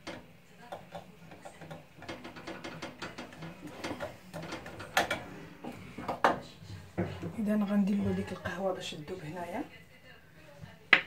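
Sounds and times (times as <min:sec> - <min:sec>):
utensil clicking against cookware: 0:00.0 - 0:05.2.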